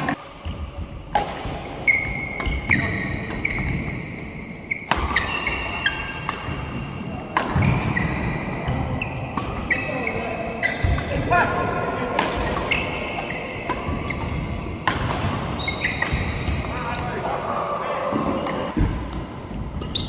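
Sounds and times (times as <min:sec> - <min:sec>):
racket striking shuttlecock: 0:01.1 - 0:01.6, 0:04.8 - 0:09.8, 0:12.0 - 0:16.6
shoes squeaking on court floor: 0:01.8 - 0:11.2, 0:12.5 - 0:17.2, 0:18.1 - 0:20.0.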